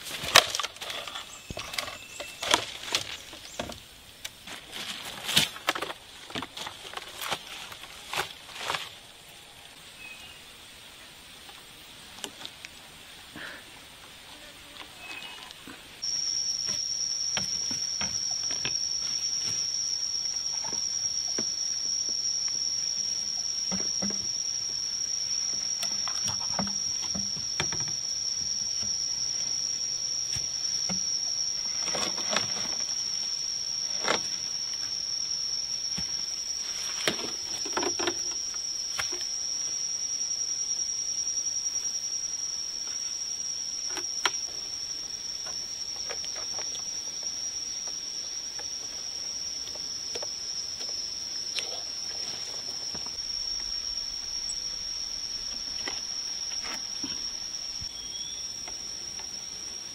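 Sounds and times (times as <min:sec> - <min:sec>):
bamboo poles knocking and rustling: 0:00.0 - 0:09.0, 0:23.6 - 0:24.4, 0:25.5 - 0:29.0, 0:35.9 - 0:39.3
high-pitched insect drone: 0:00.0 - 0:12.0, 0:13.0 - 0:59.9.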